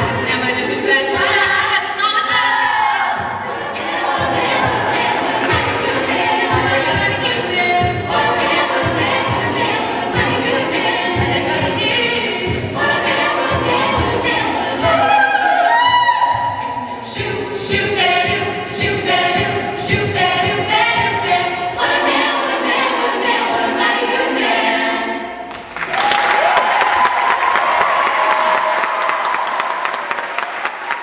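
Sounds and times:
women singing a cappella: 0.0s - 25.4s
audience applause: 25.5s - 31.0s.

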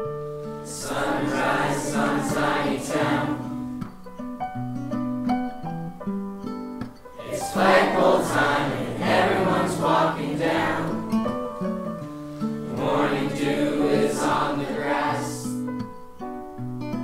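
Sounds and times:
group of voices singing: 0.7s - 3.7s, 7.2s - 11.3s, 12.6s - 15.7s.

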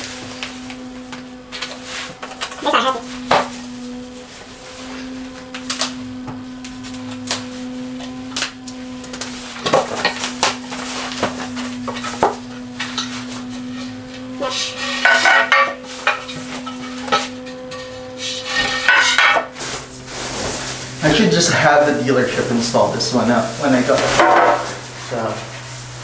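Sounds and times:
steady low hum: 0.0s - 26.0s
plastic and foam wrapping rustling: 19.2s - 26.0s.

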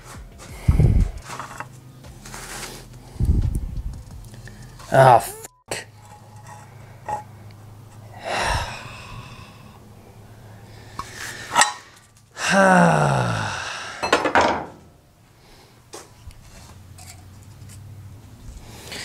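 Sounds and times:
metal parts clinking: 1.2s - 1.8s, 6.0s - 7.3s, 11.0s - 12.2s, 16.4s - 17.9s
man groaning: 4.9s - 5.5s, 12.4s - 14.2s
man sighing: 8.2s - 9.8s, 12.4s - 14.2s.

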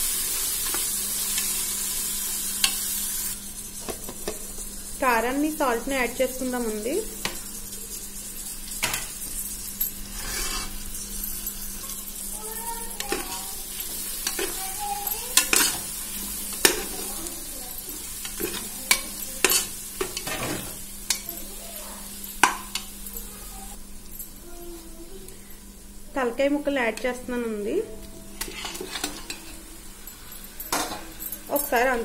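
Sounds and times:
food sizzling in oil: 0.0s - 32.0s
spoon scraping against pot: 8.8s - 12.2s, 12.8s - 17.1s, 17.8s - 21.4s, 28.4s - 29.7s.

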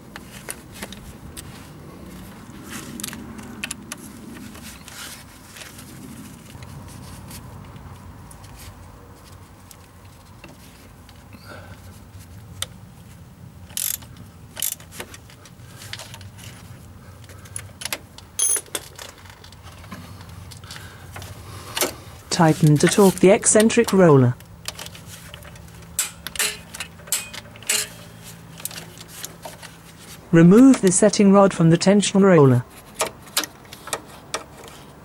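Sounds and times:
metal tools clinking and clicking: 18.4s - 19.3s, 24.8s - 29.3s.

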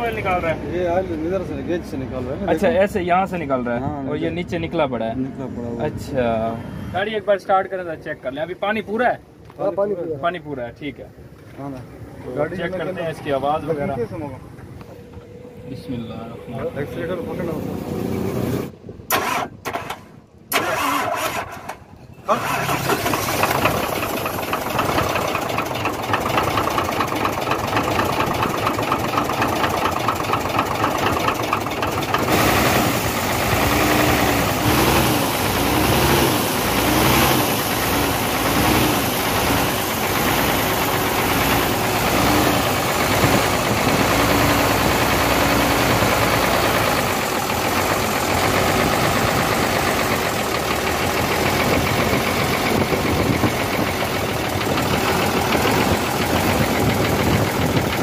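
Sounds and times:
diesel engine idling with a knock: 23.3s - 58.0s.

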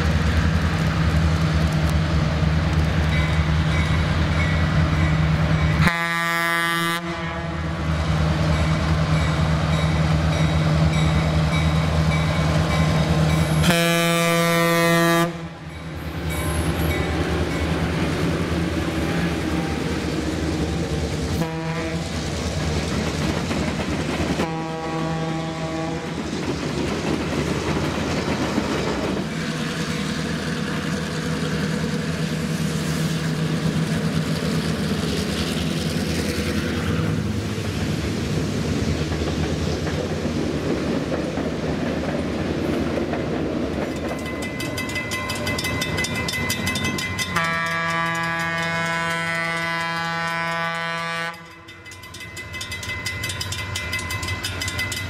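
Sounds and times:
diesel locomotive rumble: 0.0s - 55.0s
train horn blast: 5.8s - 7.8s, 13.6s - 15.6s, 21.4s - 22.1s, 24.4s - 26.2s, 47.3s - 51.7s
wheels clicking on rails: 22.0s - 24.7s, 26.0s - 55.0s.

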